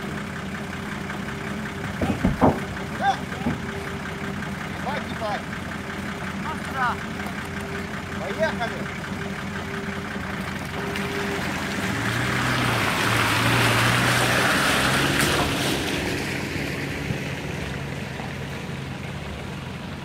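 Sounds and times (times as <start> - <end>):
low engine hum: 0.0 - 20.0
water splashing: 10.3 - 19.0.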